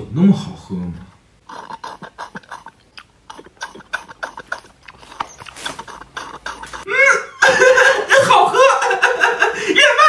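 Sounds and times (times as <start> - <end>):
person gulping a drink: 1.4 - 6.8.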